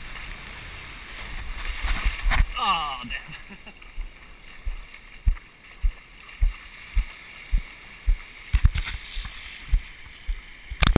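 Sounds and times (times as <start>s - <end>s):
surf wash hissing: 0.0s - 10.8s
wind: 0.0s - 10.9s
footsteps on wet sand: 3.2s - 10.5s.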